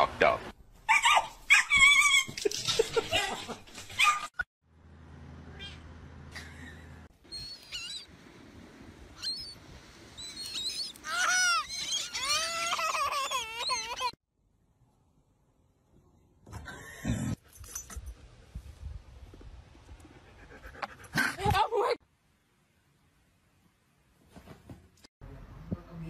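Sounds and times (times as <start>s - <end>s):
cat yowling and screeching: 10.4s - 14.2s
young girl wailing: 11.0s - 14.2s.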